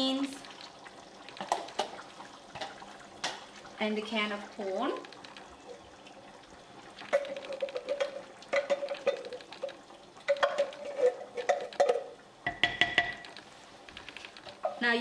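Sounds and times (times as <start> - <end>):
tin can knocking on pot rim: 7.0 - 13.2.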